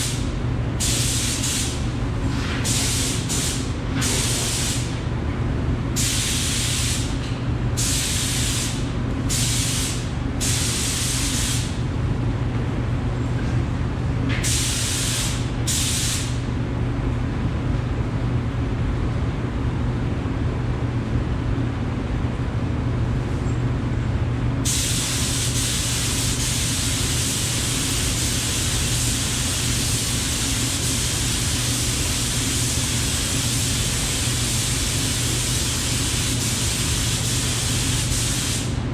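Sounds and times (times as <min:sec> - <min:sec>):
spray gun air hissing: 0:00.0 - 0:01.9, 0:02.6 - 0:04.9, 0:06.0 - 0:07.1, 0:07.8 - 0:11.8, 0:14.4 - 0:16.4, 0:24.6 - 0:38.8
exhaust fan hum: 0:00.0 - 0:38.9.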